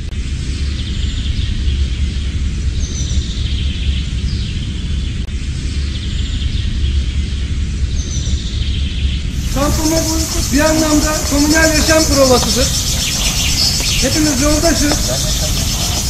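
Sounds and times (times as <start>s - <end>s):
birds chirping: 9.2s - 16.0s.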